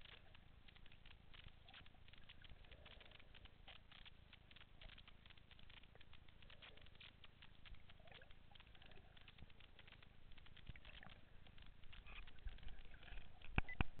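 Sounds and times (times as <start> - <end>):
underwater crackling clicks: 0.0 - 14.0.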